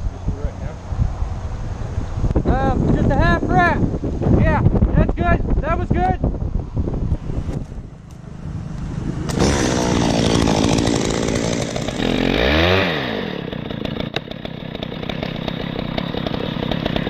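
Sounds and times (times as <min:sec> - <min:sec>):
chainsaw running and revving: 0:08.1 - 0:17.0.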